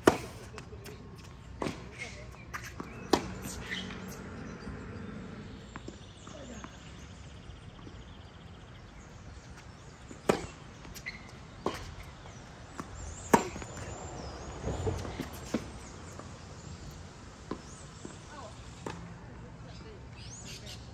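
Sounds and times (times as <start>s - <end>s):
birds chirping faintly: 0.4s - 20.9s
tennis racket hitting ball: 1.6s - 4.2s, 10.2s - 12.0s, 12.8s - 13.9s.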